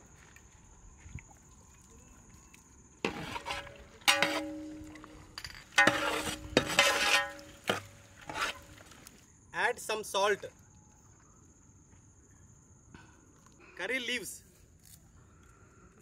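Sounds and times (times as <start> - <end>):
ladle scraping metal pot: 3.0 - 5.1, 5.7 - 8.9.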